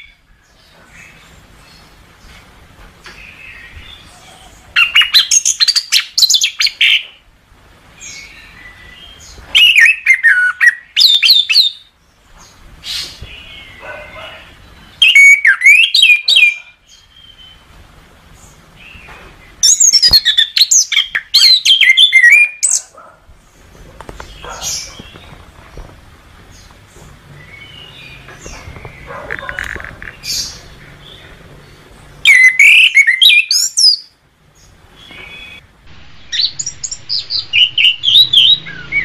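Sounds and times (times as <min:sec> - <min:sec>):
thrush singing whistled phrases: 0:32.2 - 0:34.0, 0:36.2 - 0:39.0.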